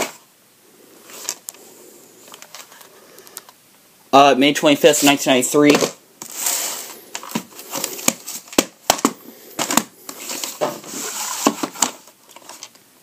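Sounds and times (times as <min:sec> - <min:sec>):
cardboard rustling: 0:04.8 - 0:12.8
tapes clicking and tapping on floor: 0:07.1 - 0:10.8.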